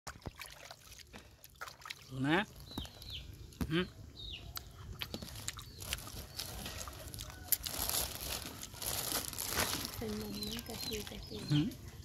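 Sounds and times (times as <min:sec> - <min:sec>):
plastic bag crinkling: 0:05.2 - 0:11.1.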